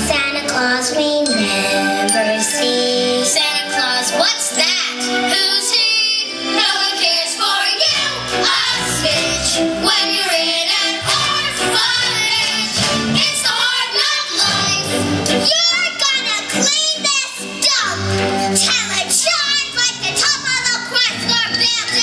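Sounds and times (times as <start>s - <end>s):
instrumental accompaniment: 0.0s - 18.8s
girls singing together: 3.1s - 15.0s.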